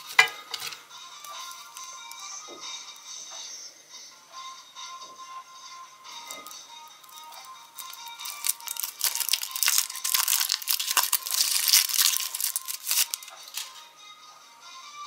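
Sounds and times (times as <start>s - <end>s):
foil wrapper crinkling and tearing: 6.3s - 13.8s.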